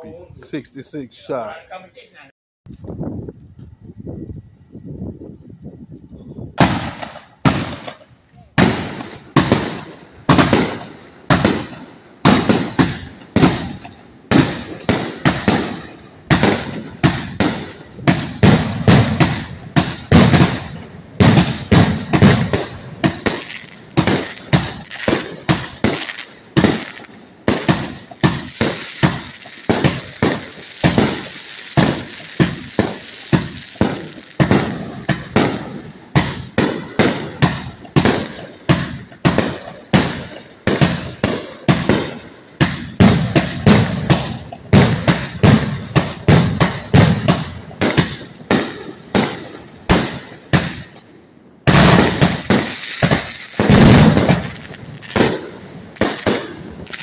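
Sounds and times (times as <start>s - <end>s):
steady high hiss: 0.0s - 39.1s, 51.7s - 57.0s
firework bangs: 6.6s - 57.0s.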